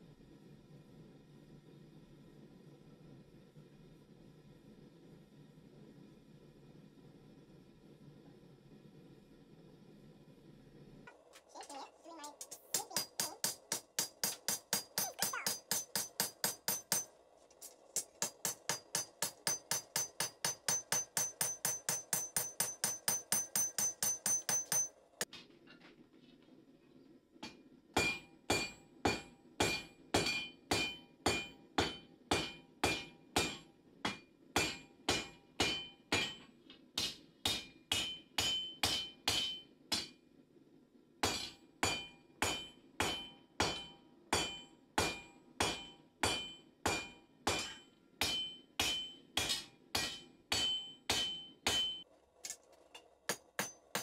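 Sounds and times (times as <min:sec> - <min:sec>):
hammer ringing on anvil: 0:12.9 - 0:17.1, 0:18.0 - 0:25.0, 0:27.4 - 0:36.4, 0:37.0 - 0:40.1, 0:41.2 - 0:52.0, 0:53.3 - 0:54.0.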